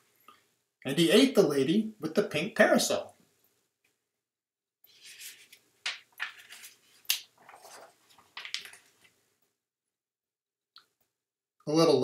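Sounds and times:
paper page rustling: 4.9 - 9.2
crisp paper crackles: 5.0 - 9.1.

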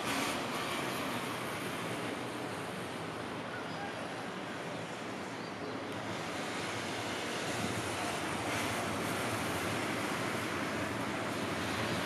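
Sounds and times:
distant road traffic hum: 0.0 - 12.0
wind noise on microphone: 7.2 - 12.0.

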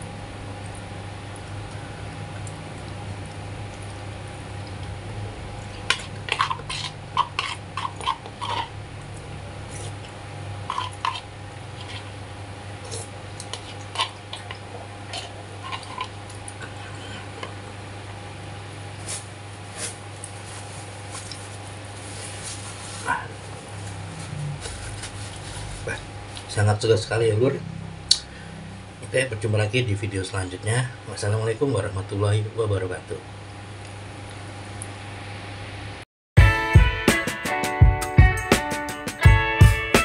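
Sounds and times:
eating sounds: 5.6 - 12.2, 12.8 - 17.8
low hum: 23.0 - 29.5.

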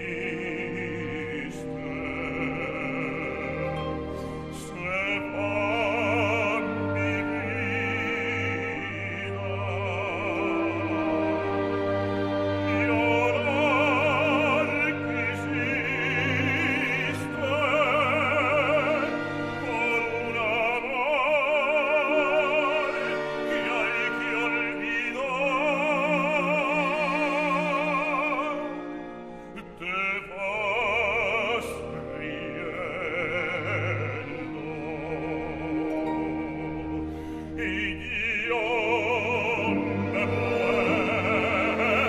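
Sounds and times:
baritone singing operatically: 0.0 - 37.0, 37.6 - 42.0
symphony orchestra: 0.0 - 42.0.

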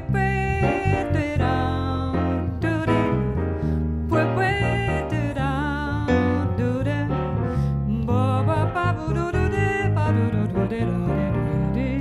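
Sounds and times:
woman singing wordless line: 0.0 - 3.4, 4.1 - 12.0
bass: 0.0 - 12.0
piano: 0.0 - 12.0.

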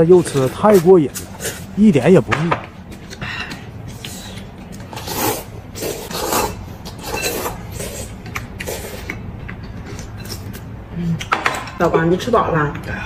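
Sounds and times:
people slurping noodles: 3.9 - 9.2.

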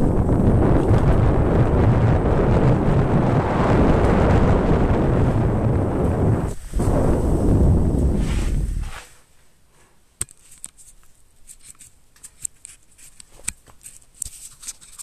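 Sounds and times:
wind rush on microphone: 0.0 - 9.1.

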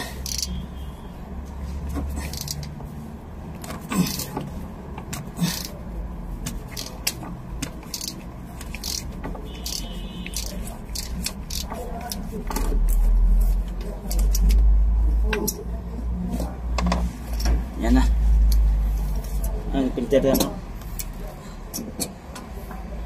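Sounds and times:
metallic clicks of tools: 0.2 - 0.6, 2.2 - 2.8, 6.4 - 13.0, 14.1 - 14.7, 20.3 - 22.5.

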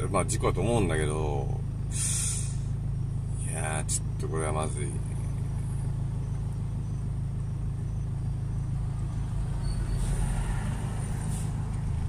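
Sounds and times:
car engine idling hum: 0.0 - 12.0
large vehicle passing: 8.8 - 12.0.

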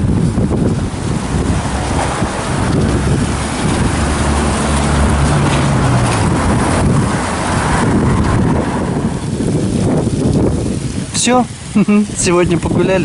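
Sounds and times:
wind gusting against microphone: 0.0 - 13.0.

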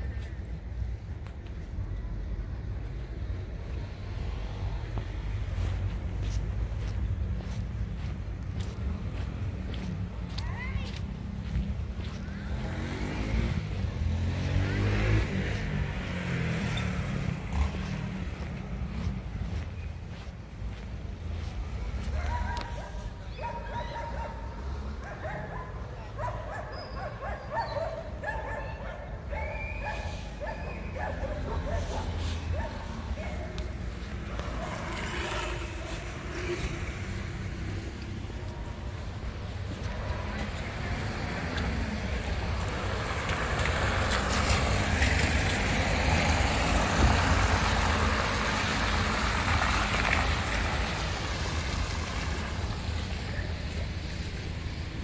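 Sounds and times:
dog barking: 22.1 - 33.7
van driving past on wet paving: 40.6 - 53.3.

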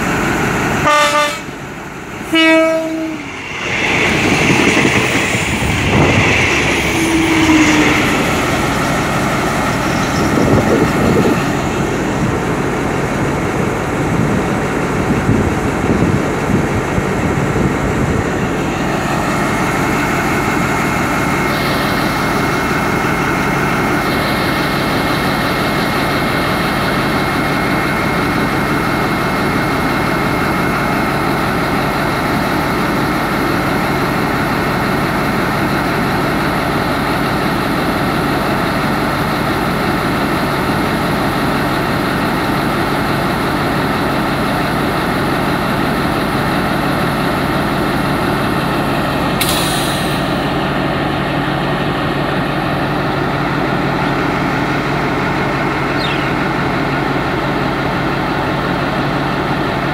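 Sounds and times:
locomotive diesel engine idling: 17.8 - 59.9.

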